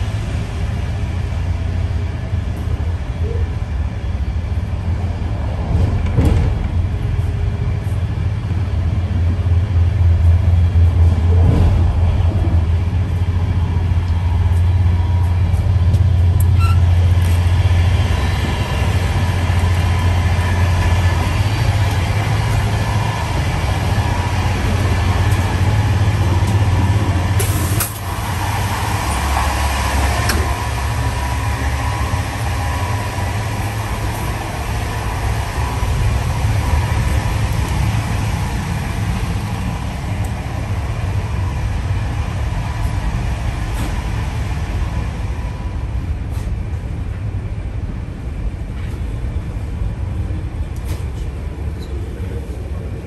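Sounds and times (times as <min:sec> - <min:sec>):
train rumbling at speed: 0:00.0 - 0:53.0.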